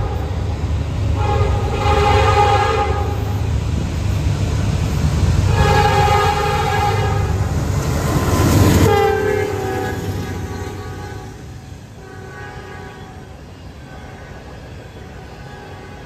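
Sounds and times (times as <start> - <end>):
train engine and wheels rumbling: 0.0 - 16.0
train multi-chime air horn: 8.8 - 11.4.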